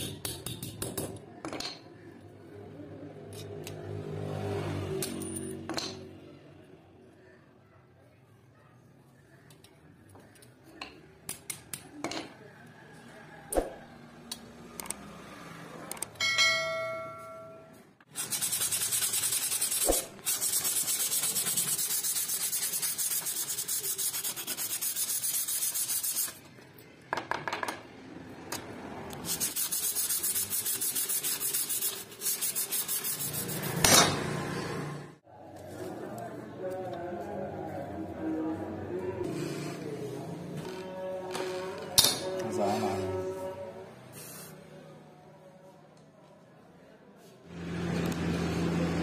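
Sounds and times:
sandpaper rasping on metal: 0:18.1 - 0:26.4, 0:29.2 - 0:33.9.

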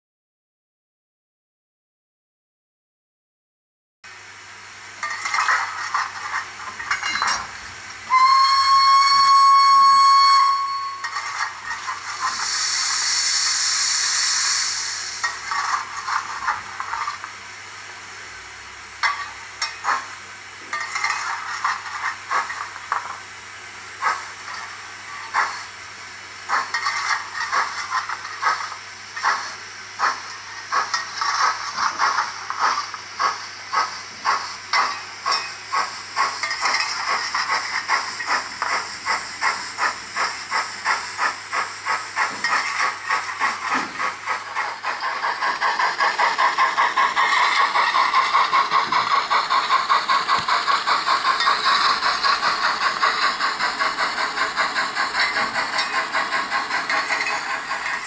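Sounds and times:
steam hissing: 0:04.2 - 0:58.0
steam whistle blast: 0:08.1 - 0:11.1
steam engine exhaust chuffs: 0:26.4 - 0:58.0.

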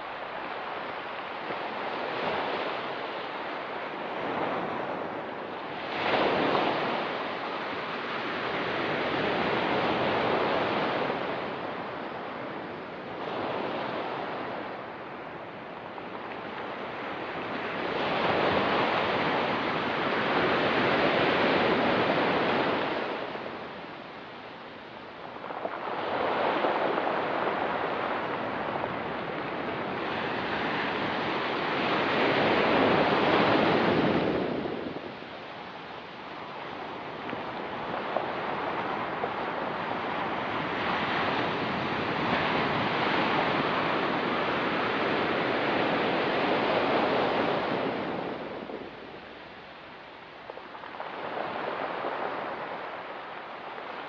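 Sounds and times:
ocean waves breaking on rocks: 0:00.0 - 0:54.0.

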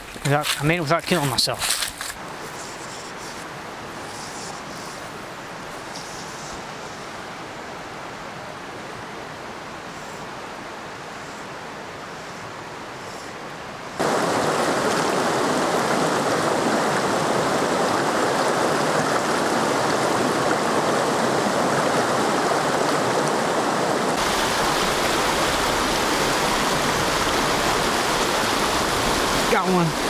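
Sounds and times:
stream rushing over rocks: 0:13.6 - 0:30.0.

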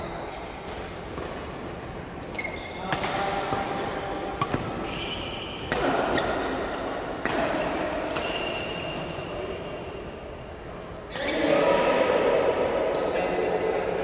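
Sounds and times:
shoes squeaking on sports floor: 0:02.1 - 0:03.0, 0:04.8 - 0:06.5
rackets striking shuttlecocks: 0:02.8 - 0:09.2.

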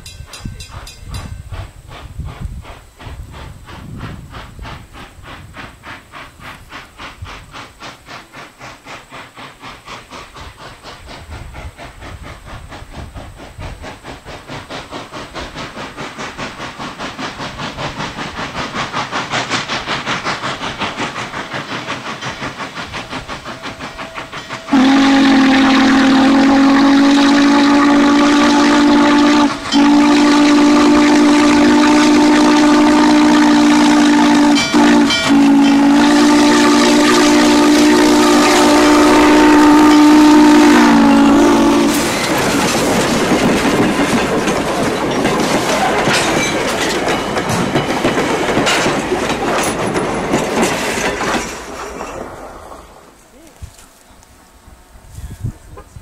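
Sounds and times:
train cars clickety-clack: 0:00.0 - 0:54.4
steam locomotive chuffing: 0:00.0 - 0:56.0
steam whistle chord: 0:24.2 - 0:42.1.

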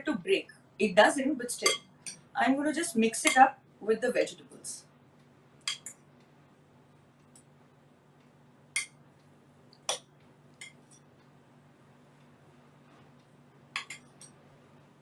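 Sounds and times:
spoons clinking against glass bowl: 0:01.6 - 0:02.2.

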